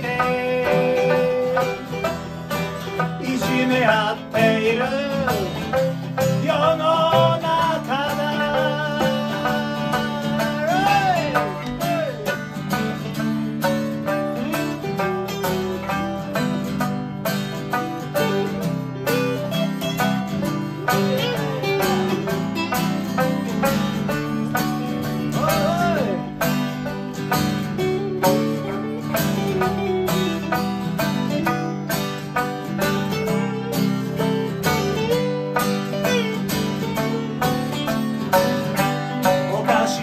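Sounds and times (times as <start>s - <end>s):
acoustic guitars strumming chords: 0.0s - 40.0s
plucked lute melody: 0.0s - 40.0s.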